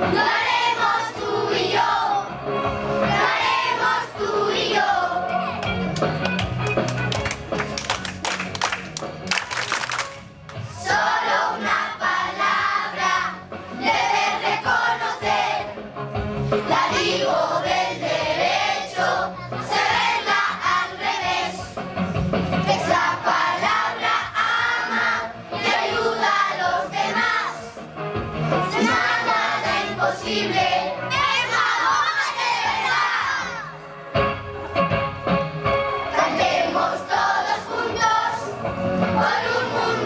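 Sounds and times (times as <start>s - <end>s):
children's choir singing: 0.0s - 5.4s, 10.7s - 15.8s, 16.6s - 21.8s, 22.6s - 27.8s, 28.6s - 33.8s, 36.0s - 40.0s.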